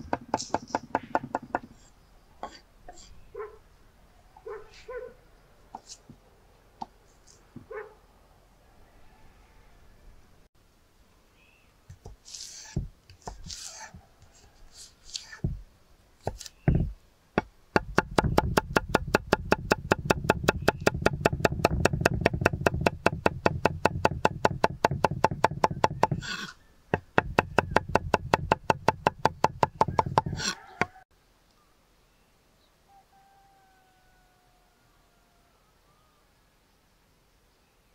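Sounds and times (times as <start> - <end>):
knife chopping on wooden board: 17.8 - 26.2, 26.9 - 30.5.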